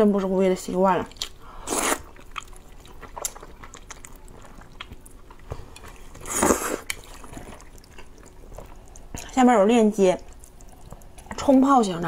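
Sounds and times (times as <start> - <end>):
chewing with wet mouth clicks: 0.1 - 12.0
noodle slurp: 6.2 - 8.1.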